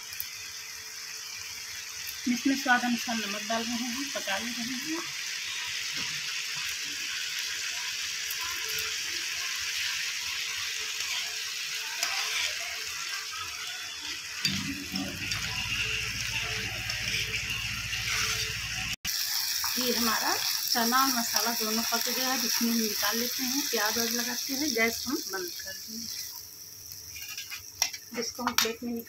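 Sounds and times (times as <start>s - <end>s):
food sizzling in a frying pan: 0.0s - 29.0s
spoon scraping a pan: 9.8s - 20.7s, 27.0s - 28.7s.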